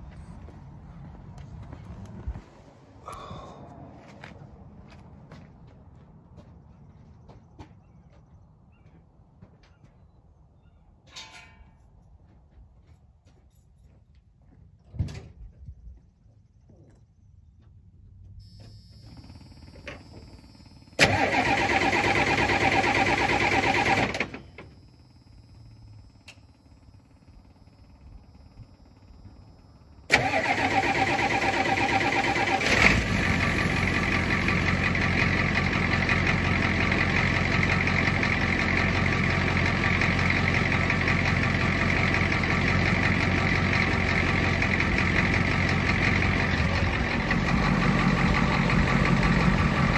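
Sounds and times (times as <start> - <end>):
diesel engine idling: 18.4 - 49.9
starter cranking engine: 21.0 - 24.6, 30.1 - 38.9.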